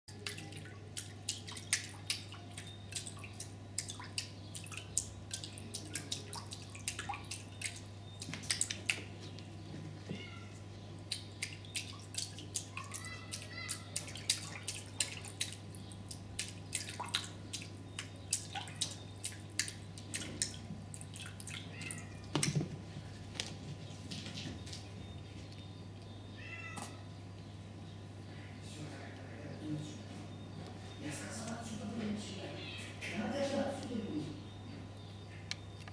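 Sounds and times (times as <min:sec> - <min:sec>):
kitten lapping water: 0:00.1 - 0:09.2, 0:11.0 - 0:22.2.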